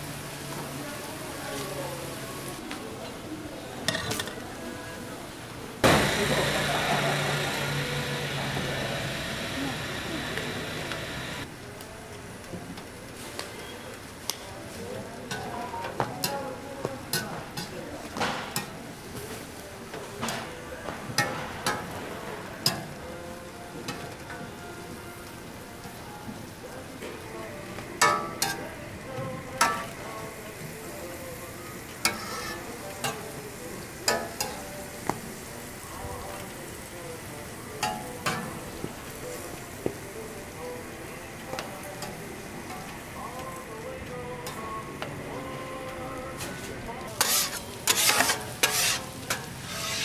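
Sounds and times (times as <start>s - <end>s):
frying sizzle: 0.0s - 50.0s
metal utensils scraping on griddle: 28.0s - 28.8s, 32.0s - 33.4s, 34.0s - 34.7s, 46.4s - 50.0s.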